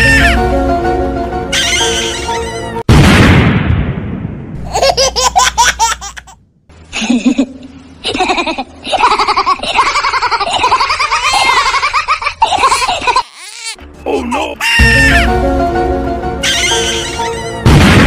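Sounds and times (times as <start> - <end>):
high-pitched cartoon laughter: 1.6 - 2.8, 7.0 - 13.8, 14.6 - 15.3, 16.4 - 17.7.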